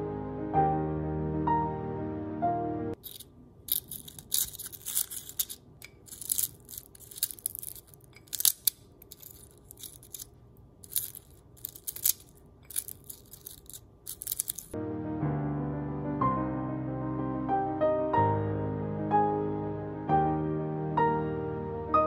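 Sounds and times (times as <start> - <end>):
soft piano music: 0.0 - 3.0, 14.8 - 22.0.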